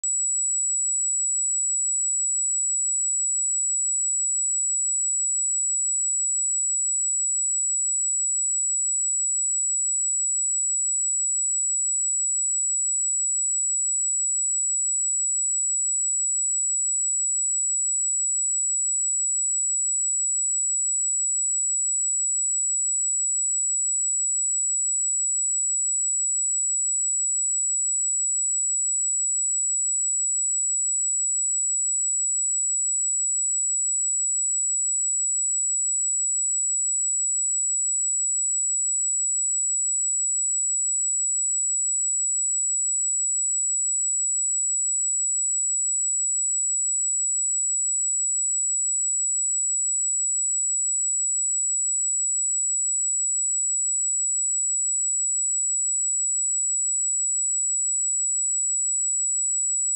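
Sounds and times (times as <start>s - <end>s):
high-pitched sine test tone: 0.0s - 3.8s.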